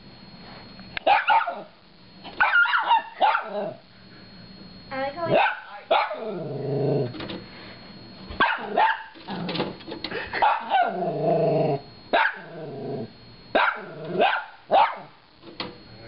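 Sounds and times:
puppy barking: 1.0 - 1.7, 2.4 - 3.8, 5.3 - 6.2, 8.4 - 9.2, 10.4 - 11.0, 12.1 - 12.5, 13.6 - 15.1.

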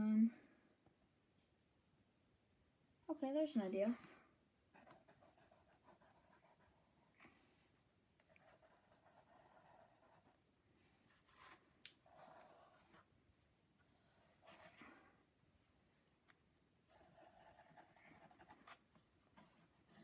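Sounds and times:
pen scratching on paper: 4.8 - 6.8, 8.3 - 10.4, 11.1 - 13.1, 13.9 - 15.0, 16.9 - 18.8, 19.4 - 20.0.

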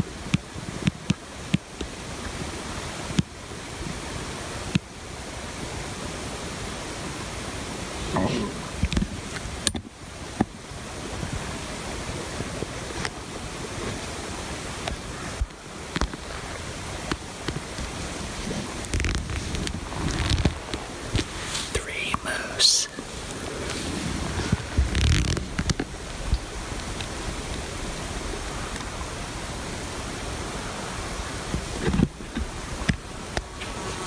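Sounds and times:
wind rushing across microphone: 0.0 - 34.0.

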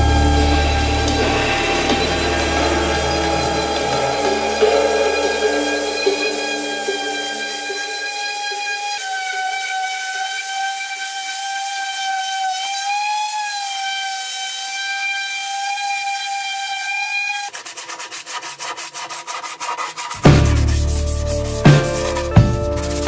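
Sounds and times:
loud music beat: 0.0 - 8.3, 20.2 - 23.0
orbital sander whine: 0.0 - 17.2
hand sanding rubbing: 0.0 - 23.0.

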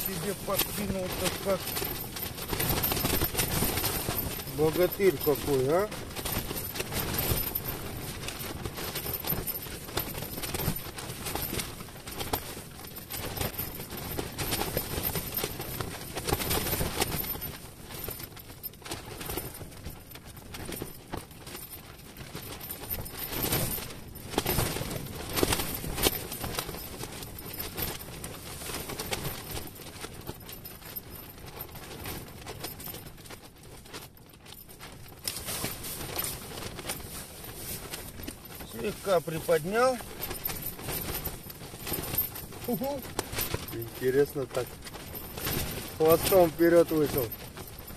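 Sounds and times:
knocks and crackles: 0.0 - 47.9
tent fabric flapping in wind: 0.0 - 47.9.

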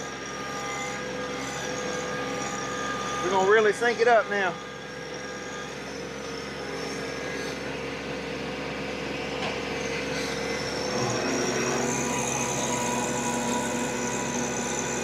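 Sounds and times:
tiller tines churning dirt: 10.8 - 15.0.

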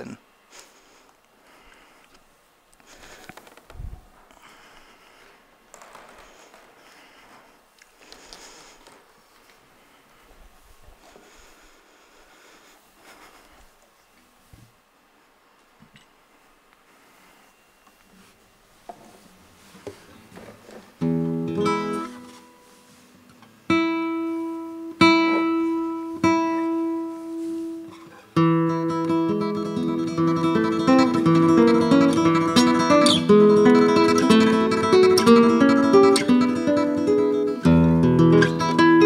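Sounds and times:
acoustic guitar waltz: 20.1 - 39.0.

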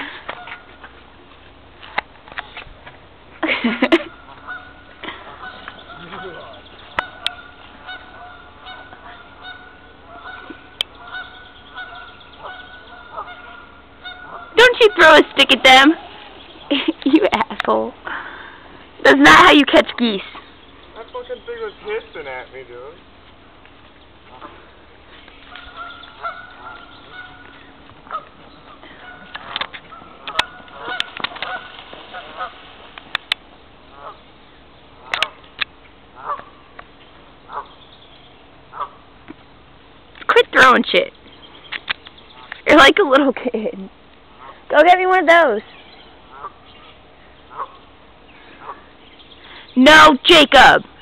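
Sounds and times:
geese honking: 3.9 - 16.9, 20.8 - 22.6, 24.2 - 35.5, 36.1 - 36.8, 37.4 - 39.2, 44.3 - 45.1, 46.2 - 49.0.

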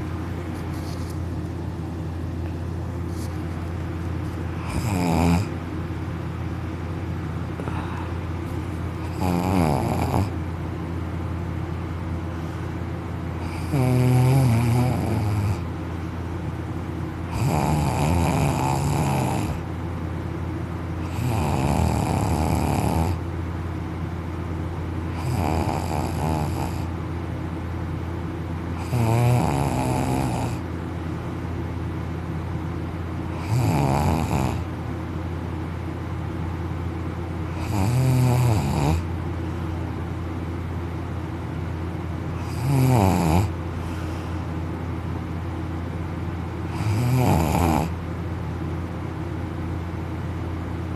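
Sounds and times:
man snoring loudly: 4.6 - 5.6, 9.0 - 10.3, 13.4 - 15.6, 17.3 - 19.6, 21.1 - 23.2, 25.1 - 26.9, 28.8 - 30.6, 33.4 - 34.7, 37.6 - 39.1, 42.4 - 43.6, 46.7 - 48.0.

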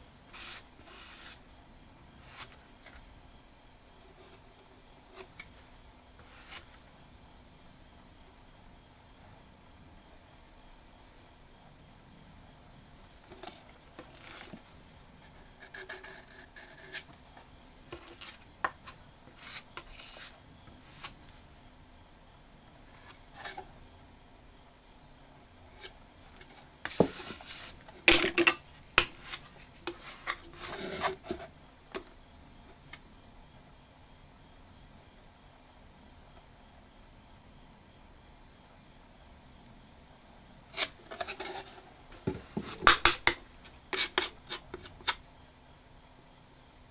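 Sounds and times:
spatulas scraping and tapping: 15.5 - 17.2, 17.9 - 21.1, 25.8 - 32.1, 40.8 - 45.2.

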